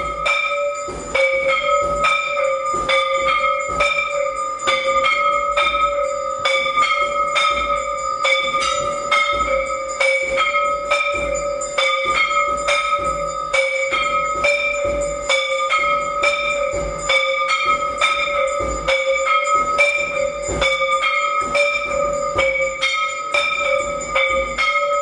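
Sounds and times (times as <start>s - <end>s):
temple bell ringing: 0.0s - 25.0s.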